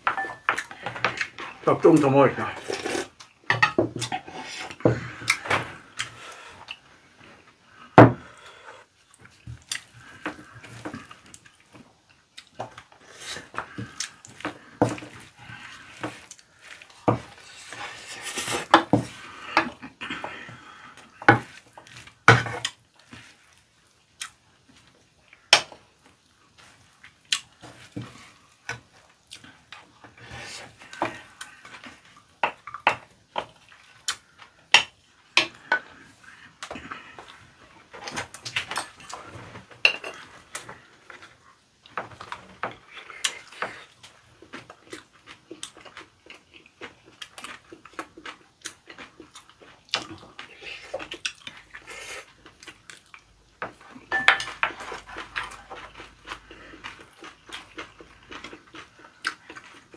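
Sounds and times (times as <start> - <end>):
spoons clinking on ceramic bowls: 54.1 - 54.6.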